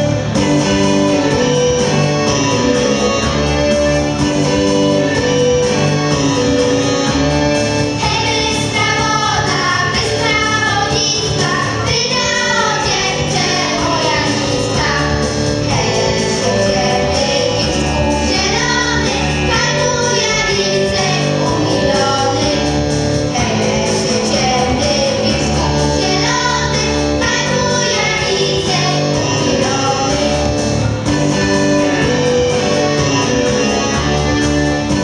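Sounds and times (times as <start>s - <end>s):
instrumental accompaniment: 0.0s - 35.0s
steady bass line: 0.0s - 35.0s
group singing folk song: 7.5s - 30.6s.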